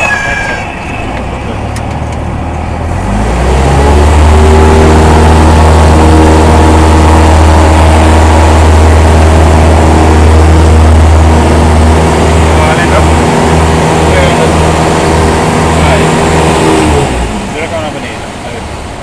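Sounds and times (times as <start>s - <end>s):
airplane engine and propeller drone: 0.0s - 19.0s.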